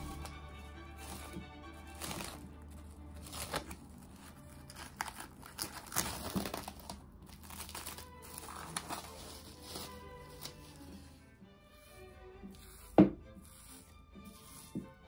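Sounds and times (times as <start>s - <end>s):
cling film crinkling: 1.8s - 10.8s.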